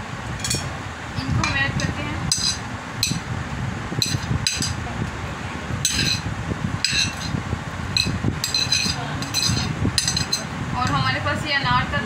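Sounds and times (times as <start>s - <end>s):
low background hum: 0.0s - 12.0s
metal spoon clinking on plate: 0.4s - 0.7s, 1.4s - 3.2s, 4.0s - 4.8s, 5.8s - 7.4s, 8.0s - 10.5s.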